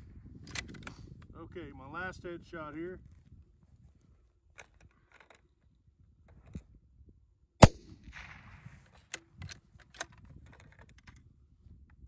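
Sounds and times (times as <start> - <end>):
rifle shot crack: 7.6 - 8.9.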